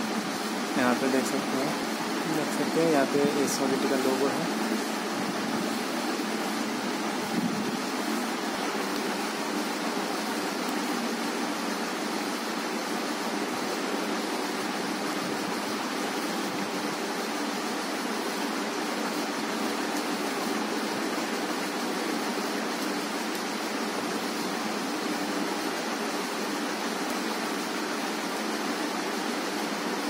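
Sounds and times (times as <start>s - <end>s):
steady rushing noise: 0.0s - 18.4s.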